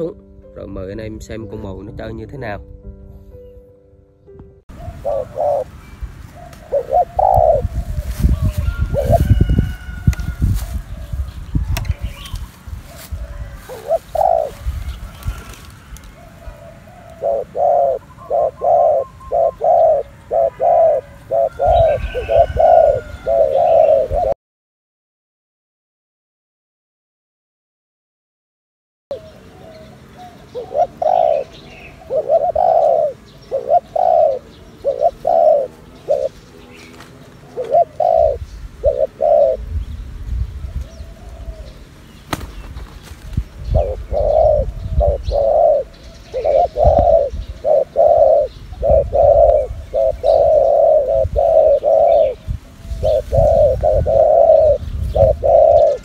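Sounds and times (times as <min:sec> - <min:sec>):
dove cooing: 0:04.7 - 0:05.8, 0:06.4 - 0:10.0, 0:13.0 - 0:24.4, 0:29.1 - 0:39.8, 0:40.6 - 0:41.9, 0:43.5 - 0:56.0.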